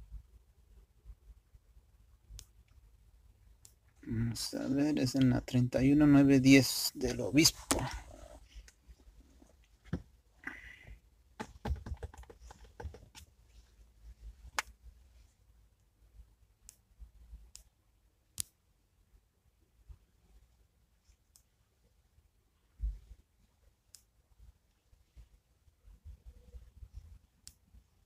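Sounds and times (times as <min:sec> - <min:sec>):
fingers tapping a smartphone: 0:09.9 - 0:13.3.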